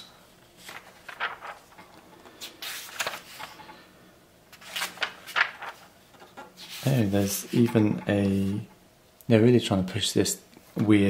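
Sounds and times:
magazine pages rustling: 0.5 - 3.8, 4.5 - 8.6.

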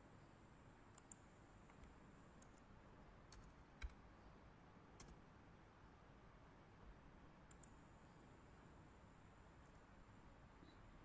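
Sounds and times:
keyboard and mouse clicks: 1.0 - 1.9, 3.3 - 4.0, 5.0 - 5.2, 7.5 - 7.8.

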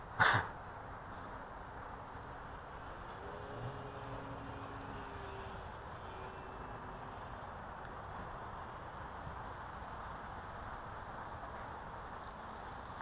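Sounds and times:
outdoor noise haze: 0.0 - 13.0
electric model plane motor whine: 2.2 - 9.4.

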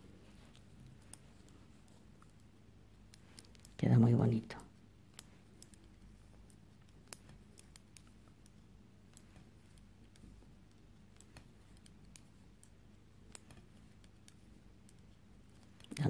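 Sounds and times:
knitting needles clicking: 0.0 - 4.2, 5.0 - 16.0
low room hum: 0.0 - 16.0.

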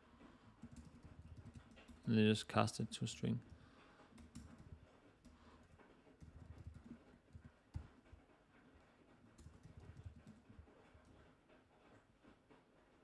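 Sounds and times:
typing on computer keyboard: 0.6 - 2.2, 3.4 - 8.2, 9.3 - 11.2.

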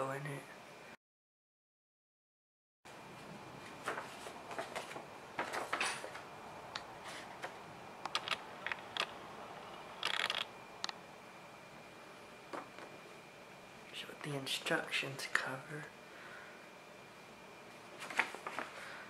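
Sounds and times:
paper crackling and rustling: 3.6 - 6.3, 18.0 - 18.8.

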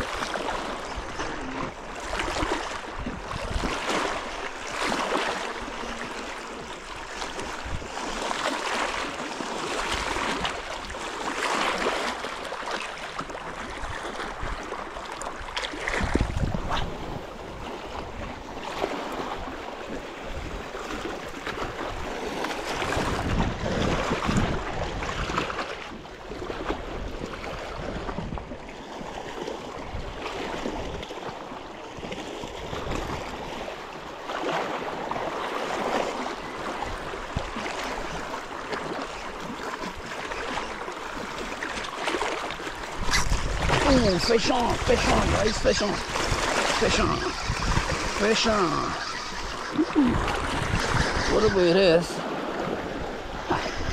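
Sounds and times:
wind gusting across microphone: 0.0 - 8.2, 15.5 - 28.5, 42.8 - 53.9
small waves lapping at shore: 0.0 - 53.9.

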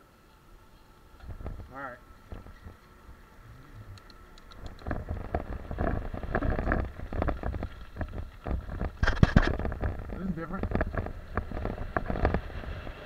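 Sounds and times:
wind rumble on microphone: 1.2 - 13.0
bike rattling over bumps: 4.7 - 13.0
tyres crunching over stones: 4.8 - 13.0.

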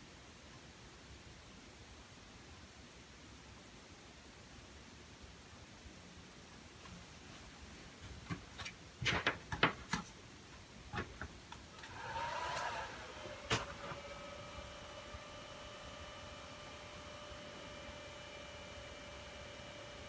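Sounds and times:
cooling fans whining: 7.7 - 20.0.

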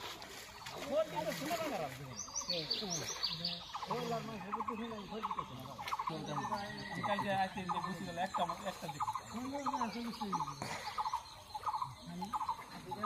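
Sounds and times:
bird chirps: 0.6 - 13.0
people talking indistinctly: 0.7 - 13.0.

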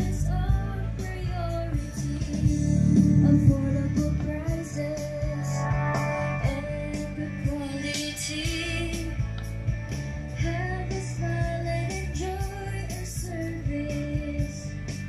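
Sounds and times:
country song with guitar and singing: 10.3 - 15.0.

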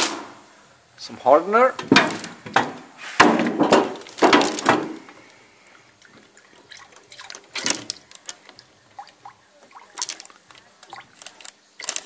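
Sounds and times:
liquid pouring into plastic cup: 5.9 - 12.0.

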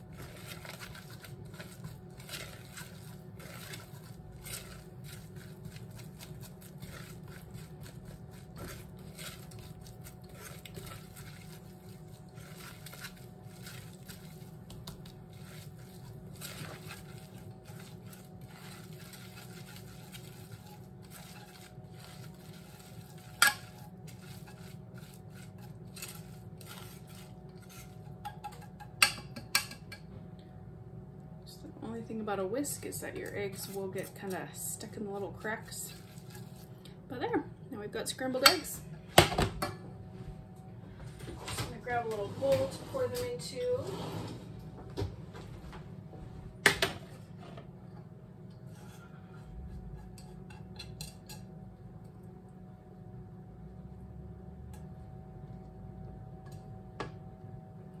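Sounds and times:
whisk scraping saucepan: 0.0 - 30.0, 32.4 - 36.9, 41.6 - 44.7, 48.5 - 51.4.

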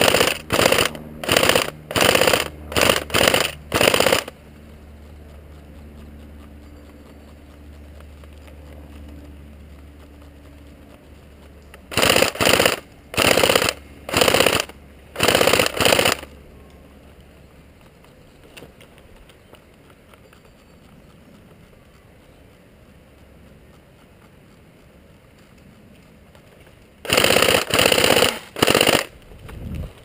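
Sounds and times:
airsoft gun bursts: 0.0 - 4.4, 11.9 - 16.3, 27.0 - 29.2.

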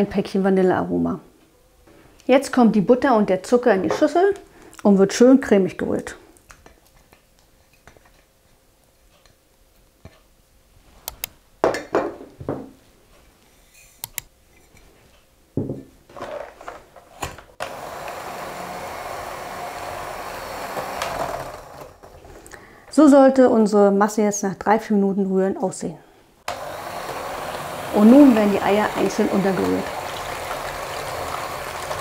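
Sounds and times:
electric hand mixer running: 17.6 - 22.3, 26.5 - 32.0.

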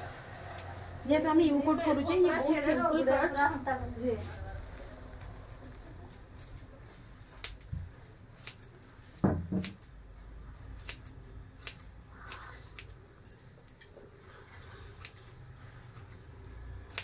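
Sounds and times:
scissors snipping hair: 5.4 - 6.7, 7.3 - 7.8, 8.4 - 8.8, 10.8 - 14.0, 15.0 - 15.4.

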